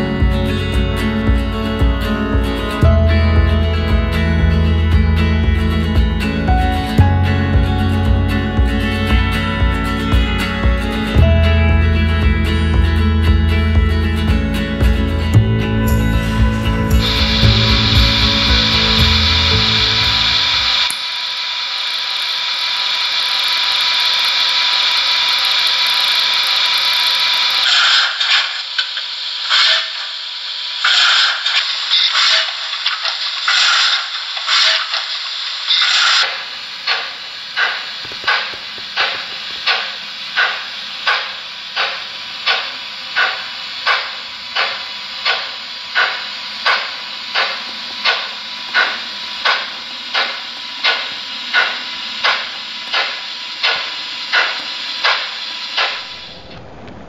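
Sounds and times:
model steam locomotive chuffing: 11.9s - 56.4s
steam hissing: 16.3s - 57.0s.

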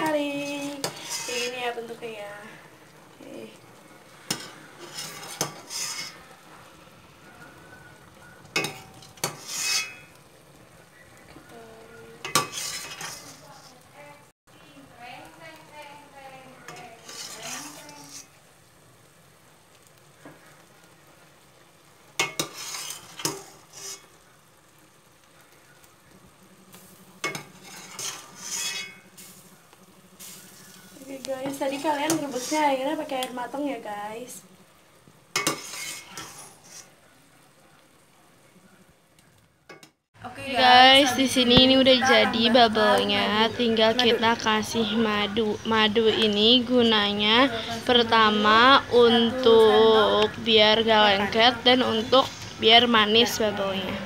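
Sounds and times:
spatula scraping mesh: 0.0s - 1.8s, 4.2s - 6.3s, 8.6s - 10.2s, 12.2s - 13.8s, 16.6s - 18.4s, 22.2s - 24.2s, 26.8s - 29.6s, 30.2s - 33.2s, 35.3s - 37.0s.

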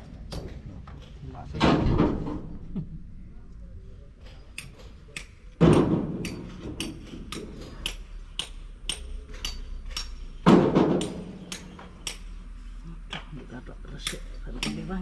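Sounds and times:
sharp metallic taps: 4.5s - 12.4s
heavy ringing metal knocks: 5.6s - 7.4s.

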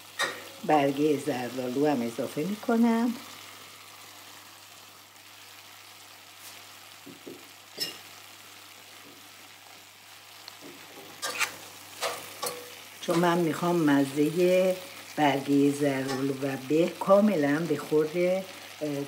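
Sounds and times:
food sizzling in a pot: 0.0s - 19.0s
metal spoon scraping a pot: 11.2s - 12.6s.

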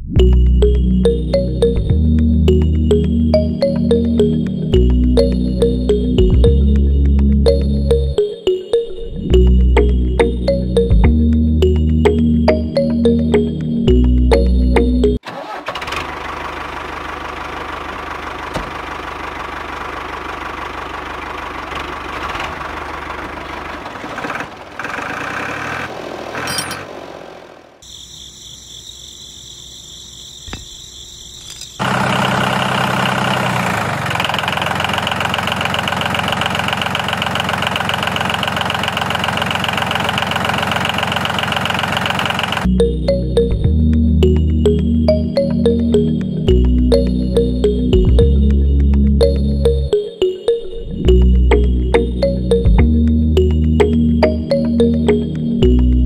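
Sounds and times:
motor running: 31.8s - 42.7s.

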